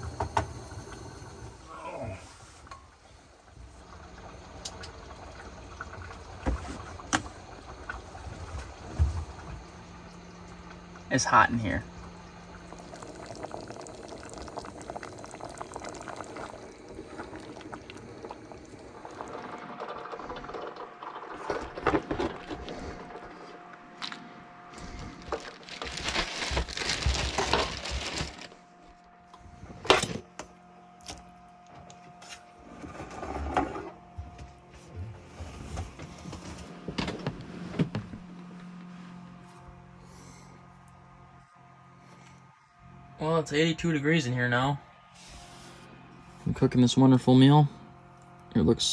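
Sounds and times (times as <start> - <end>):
thick sauce bubbling in a pot: 12.1 - 21.5
ladle scooping and pouring: 12.6 - 24.2.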